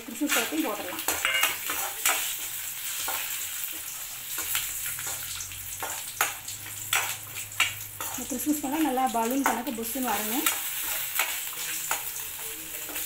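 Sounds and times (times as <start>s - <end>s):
nuts sizzling in hot oil: 0.0s - 13.0s
metal ladle scraping pan: 1.1s - 2.2s.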